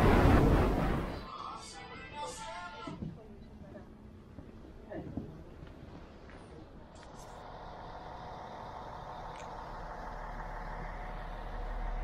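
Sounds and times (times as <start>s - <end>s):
engine drone: 0.0s - 1.3s, 7.0s - 12.0s.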